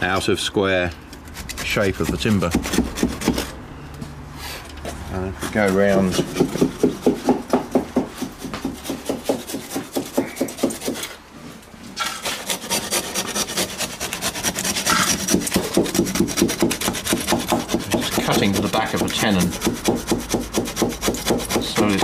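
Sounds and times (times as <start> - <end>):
handsaw cutting wood: 1.3 - 3.6, 5.4 - 7.4, 8.2 - 11.2, 12.0 - 22.0.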